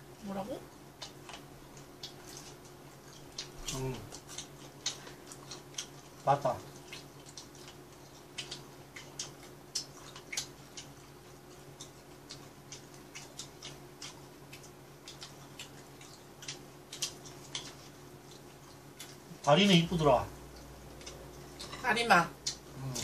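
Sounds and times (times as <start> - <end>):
steady low hum: 0.0 - 23.0
chewing crunches: 1.0 - 21.8.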